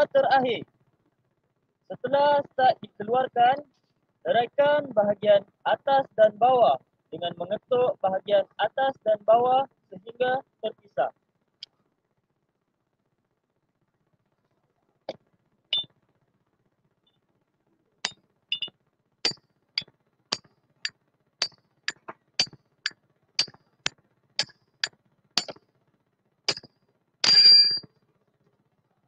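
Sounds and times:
hammer clanking on metal: 0:25.4 - 0:25.6.

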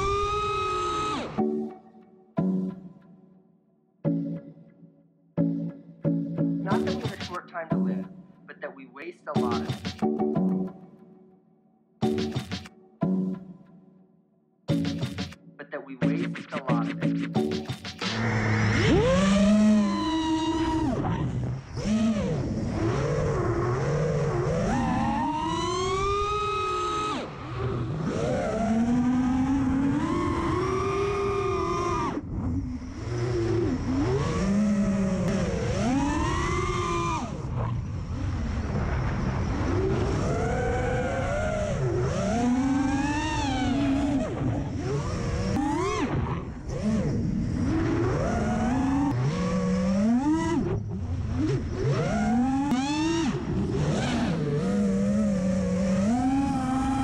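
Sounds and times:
quadcopter motors whining: 0:00.0 - 0:01.5, 0:17.6 - 0:57.0.

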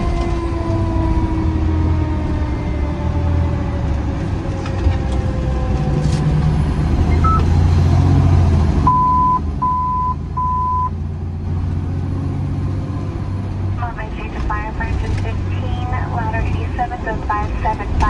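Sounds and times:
diesel engine running: 0:00.0 - 0:18.0
short electronic beeps: 0:07.1 - 0:07.5, 0:08.9 - 0:11.0.

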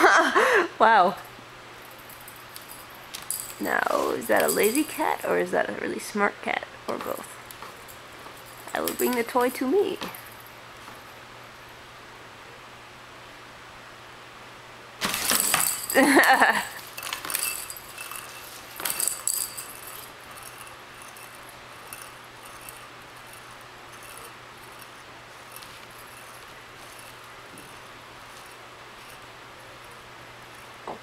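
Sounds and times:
plastic toy rattling: 0:02.0 - 0:05.5, 0:07.0 - 0:10.4, 0:15.0 - 0:30.9.

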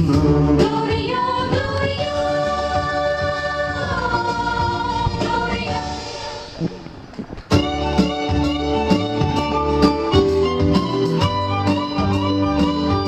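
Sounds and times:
singers holding notes: 0:00.0 - 0:07.1
guitar with strong beat: 0:07.5 - 0:13.0.

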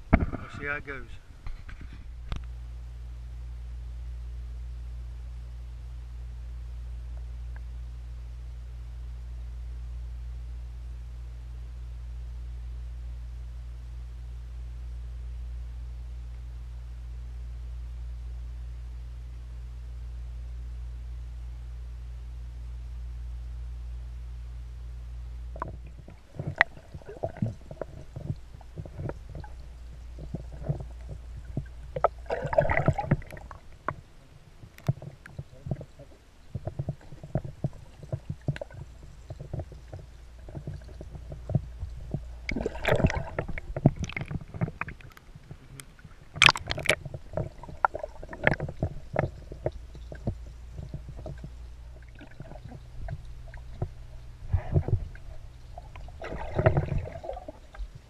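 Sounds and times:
small underwater knocks and clicks: 0:00.0 - 0:00.5, 0:01.4 - 0:02.6, 0:25.5 - 0:58.0
underwater gurgling and sloshing: 0:00.0 - 0:05.5, 0:25.2 - 0:58.0
splashing: 0:25.6 - 0:58.0.

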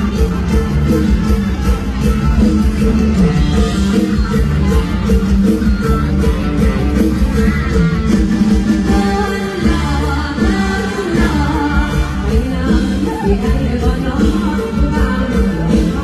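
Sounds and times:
drum kit: 0:00.0 - 0:16.0
electric guitar: 0:00.0 - 0:16.0
stage band playing loudly: 0:00.0 - 0:16.0
person singing: 0:08.8 - 0:16.0.

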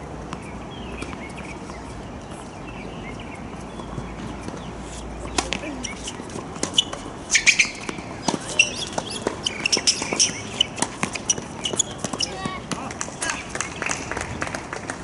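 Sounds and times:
sneakers squeaking on court: 0:00.3 - 0:12.7
ball bouncing on court: 0:06.6 - 0:13.0
racket striking ball: 0:06.6 - 0:13.0.

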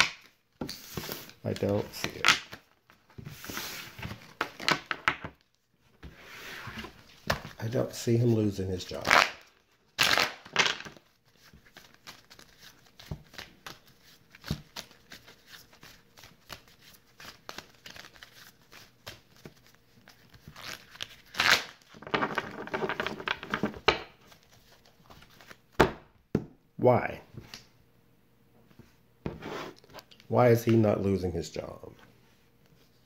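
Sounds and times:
cards being shuffled: 0:00.0 - 0:05.0, 0:08.9 - 0:25.7.

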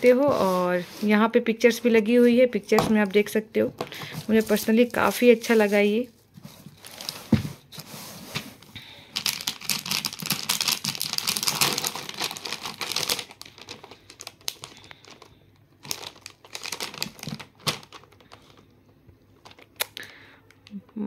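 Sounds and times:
plastic packaging crinkling: 0:03.9 - 0:07.9, 0:08.6 - 0:20.2.

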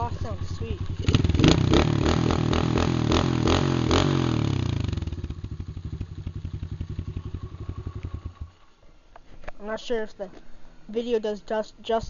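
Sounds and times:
dirt bike engine revving: 0:00.0 - 0:08.8.

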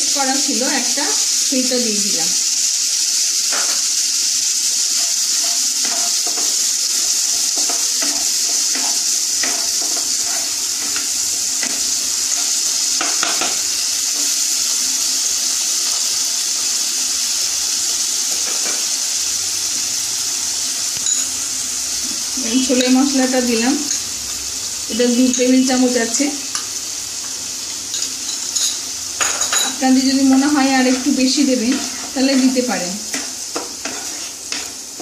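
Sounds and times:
paste sizzling in oil: 0:00.0 - 0:35.0
wooden spatula scraping and tapping: 0:05.0 - 0:06.6, 0:07.6 - 0:11.8, 0:30.3 - 0:35.0.

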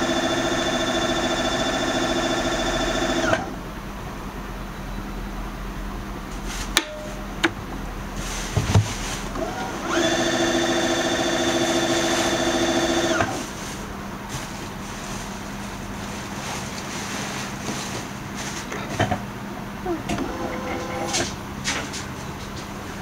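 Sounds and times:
sewing machine motor whine: 0:00.0 - 0:03.6, 0:09.4 - 0:13.5, 0:20.1 - 0:21.3.

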